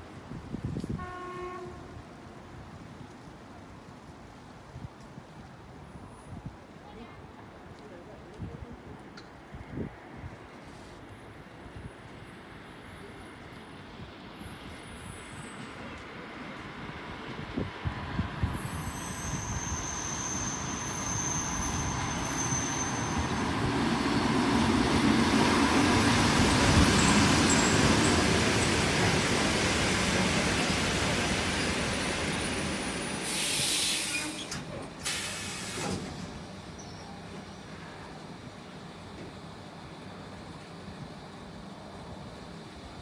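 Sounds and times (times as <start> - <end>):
train wheels rumbling: 12.1 - 42.9
thin high squeal: 18.7 - 23.4, 33.3 - 34.6
compressed air hiss: 33.2 - 36.0.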